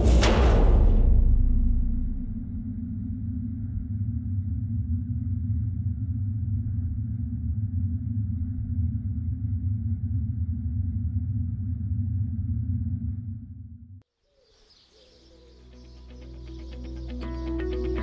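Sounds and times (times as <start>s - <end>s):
low rumbling drone: 0.0s - 14.0s.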